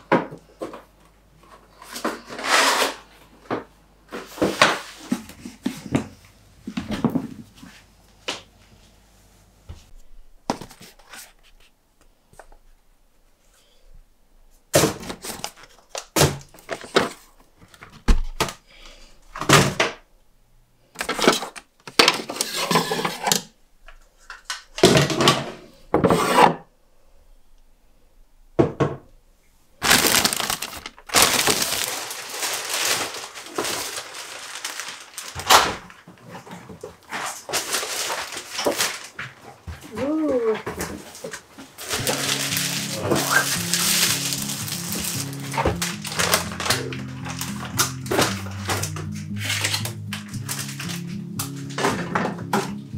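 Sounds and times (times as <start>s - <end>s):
items knocking on cupboard shelves: 28.6s - 29.1s
plastic bags rustling: 29.8s - 52.3s.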